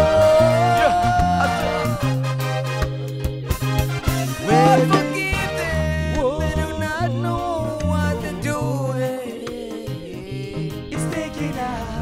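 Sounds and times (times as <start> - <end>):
person singing: 0.0 - 2.3, 4.4 - 12.0
bass notes: 0.0 - 9.1
drums: 0.0 - 11.9
keyboards: 0.0 - 12.0.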